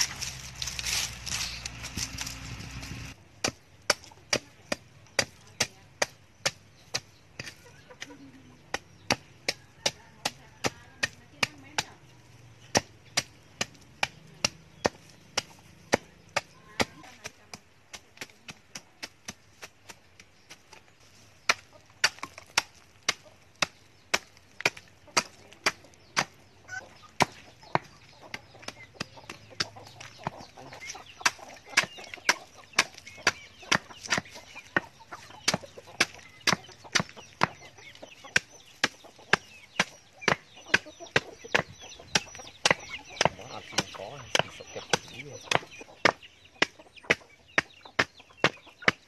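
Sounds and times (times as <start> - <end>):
axe chopping termite nest: 0.0 - 20.6, 21.4 - 49.0
chickens clucking: 0.0 - 49.0.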